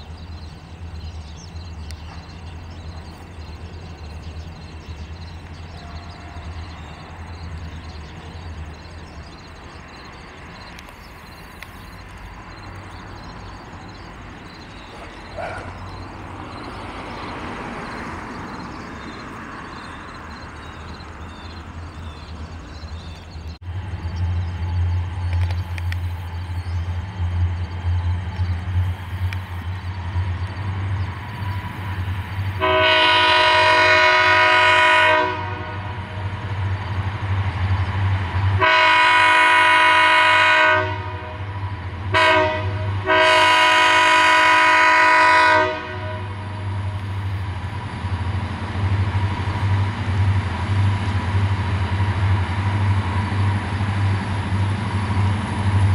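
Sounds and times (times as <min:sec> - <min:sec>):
diesel locomotive engine drone: 0:00.0 - 0:55.9
locomotive horn blasts: 0:05.7 - 0:06.6, 0:32.6 - 0:36.2, 0:38.6 - 0:41.5, 0:42.1 - 0:46.8.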